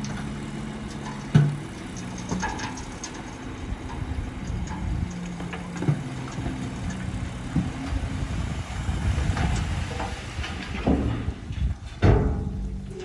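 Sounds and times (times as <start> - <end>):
soil knocking sliding out: 0.0 - 8.0
diesel engine running: 0.0 - 13.0.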